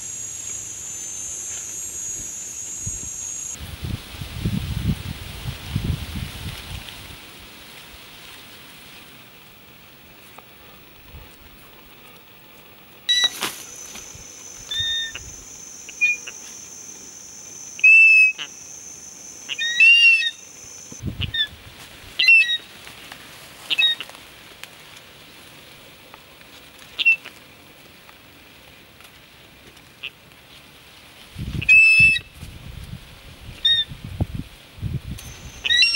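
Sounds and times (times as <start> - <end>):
high-pitched buzz: 0.0 - 3.6, 13.1 - 21.2, 35.2 - 35.9
eagle shrill alarm calls: 13.1 - 13.9, 14.5 - 16.9, 17.6 - 20.4, 27.0 - 27.2, 31.6 - 32.2, 35.3 - 35.9.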